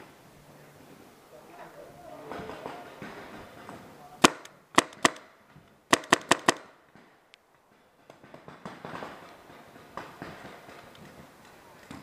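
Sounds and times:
paintball pistol pops: 4.2s - 5.3s.

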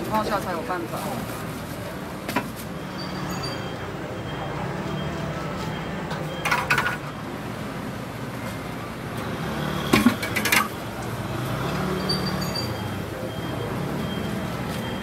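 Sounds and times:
metal utensils clattering: 10.0s - 10.8s.

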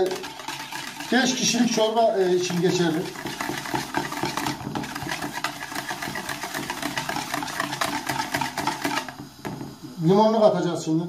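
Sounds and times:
whisk clattering in plastic bowl: 0.0s - 9.2s.

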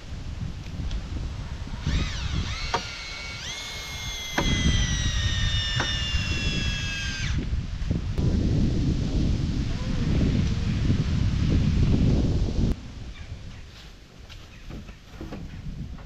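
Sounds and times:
cordless drill motor whining: 1.7s - 7.5s.

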